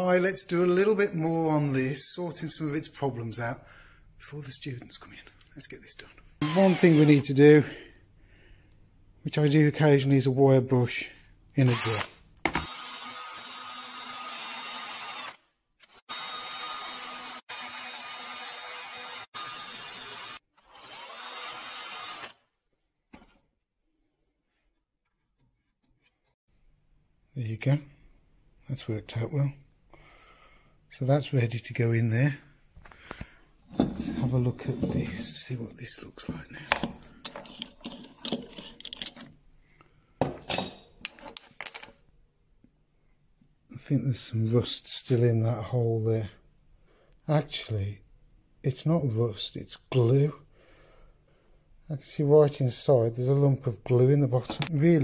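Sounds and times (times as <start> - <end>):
drill with wire brush scrubbing: 6.4 - 7.4, 11.7 - 22.5, 37.3 - 39.3
metal clinks: 37.2 - 39.3.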